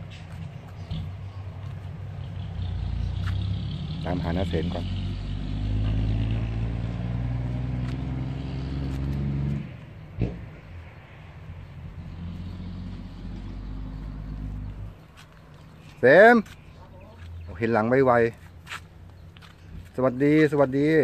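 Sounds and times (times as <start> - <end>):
engine running: 0.0 - 15.6.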